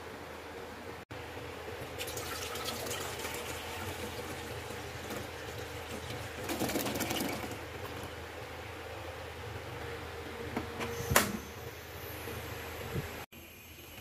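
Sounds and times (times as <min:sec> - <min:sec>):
milk pouring into metal pot: 0:01.9 - 0:07.6.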